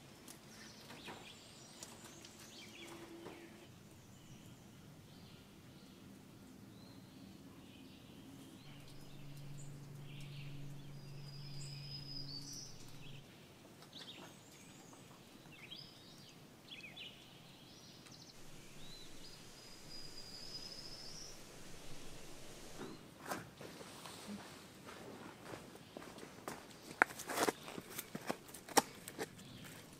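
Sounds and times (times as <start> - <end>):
faint low hum: 0.4 - 23.8
birds singing: 0.5 - 23.0
high bird trills: 8.4 - 13.2, 18.4 - 23.0.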